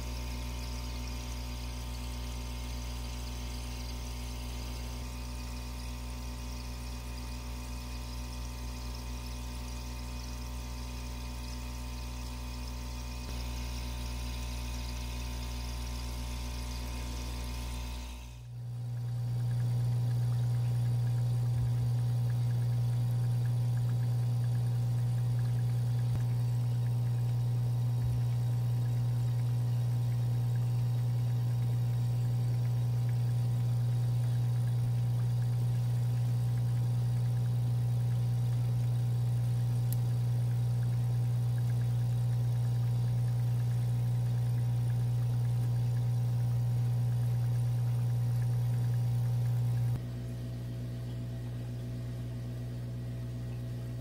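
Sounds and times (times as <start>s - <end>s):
aquarium filter motor hum: 0.0s - 54.0s.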